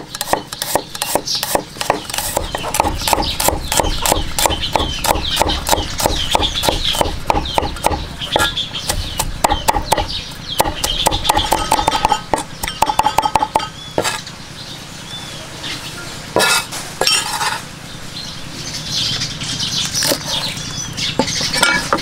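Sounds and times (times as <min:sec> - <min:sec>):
cleaver chopping on wooden board: 0:00.0 - 0:14.2, 0:16.4 - 0:17.2.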